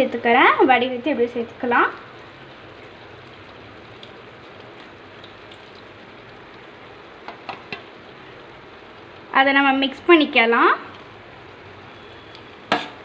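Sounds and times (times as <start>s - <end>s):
vegetables sizzling in a pan: 0.0s - 13.0s.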